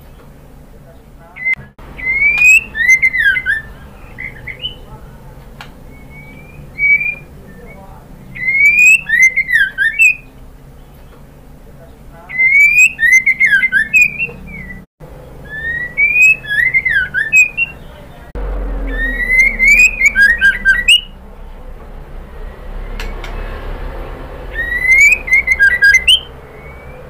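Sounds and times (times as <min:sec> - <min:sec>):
steady low hum: 0:00.0 - 0:27.0
bird whistling and chattering: 0:01.4 - 0:05.1, 0:05.8 - 0:10.4, 0:12.3 - 0:21.2, 0:24.5 - 0:27.0.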